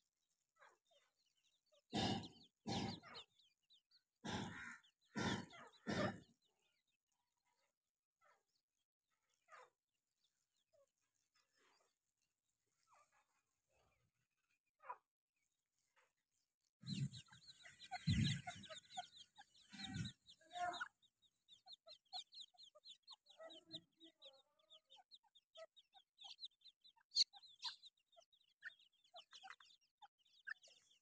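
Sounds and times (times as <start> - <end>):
chicks peeping: 0.2 - 7.0, 9.3 - 31.0
hen clucking softly: 4.2 - 6.5, 16.8 - 31.0.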